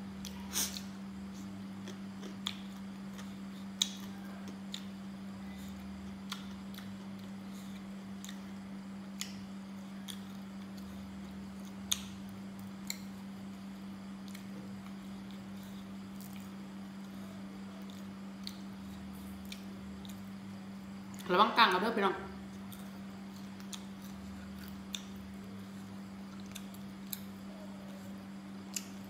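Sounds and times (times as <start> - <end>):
steady low hum: 0.0 - 29.0
chewing clicks and smacks: 0.2 - 5.0, 6.2 - 8.5, 9.1 - 9.4, 10.0 - 10.9, 11.6 - 13.2, 14.2 - 15.5, 16.1 - 20.4, 22.5 - 27.5, 28.7 - 29.0.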